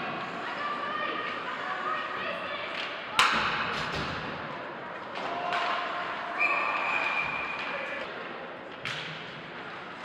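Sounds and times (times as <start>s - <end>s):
hall crowd noise: 0.0s - 8.8s
referee's whistle: 6.4s - 7.6s.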